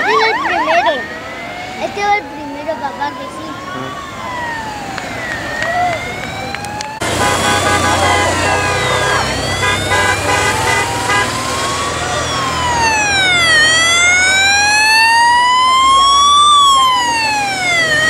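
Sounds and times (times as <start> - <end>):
choppy on-off siren tone: 0.0 - 18.0
siren wailing: 0.0 - 18.0
low engine rumble: 4.0 - 18.0.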